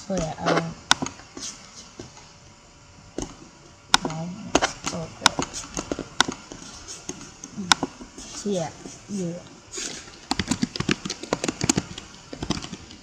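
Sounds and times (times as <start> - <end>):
computer mouse and keyboard clicks: 10.3 - 13.0.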